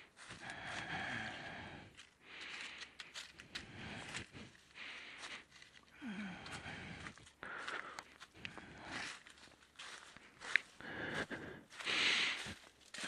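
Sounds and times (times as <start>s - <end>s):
dry leaves and twigs crackling: 0.0s - 13.0s
breathing close to microphone: 0.2s - 9.3s, 10.2s - 13.0s.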